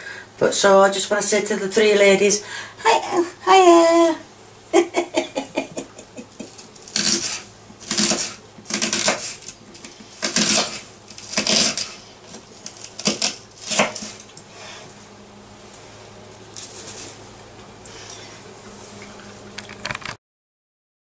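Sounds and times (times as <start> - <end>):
knife chopping on wooden board: 6.9 - 14.2.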